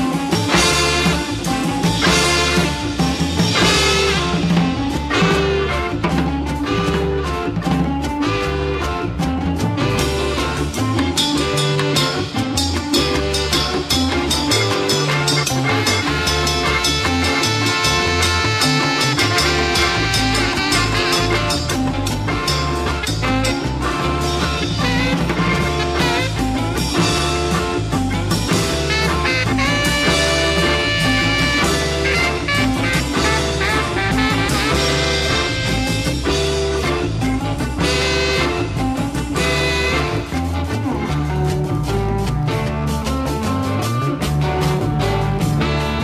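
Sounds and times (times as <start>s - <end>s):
upbeat band music: 0.0s - 46.0s.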